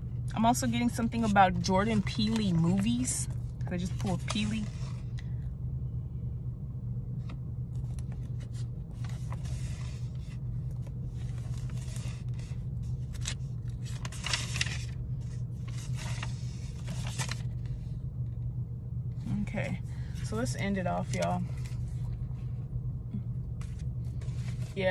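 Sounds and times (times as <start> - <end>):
car cabin rumble: 0.0 - 5.3, 19.2 - 24.9.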